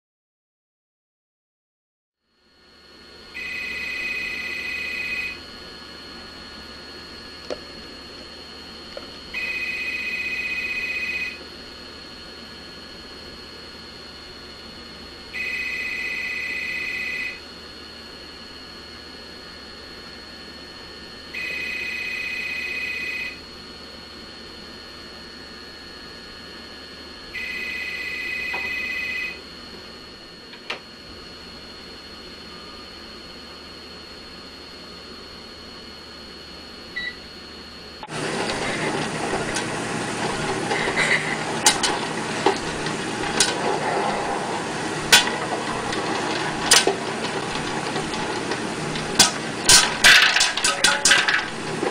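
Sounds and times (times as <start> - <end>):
telephone ringing: 3.4 - 5.4, 9.3 - 11.4.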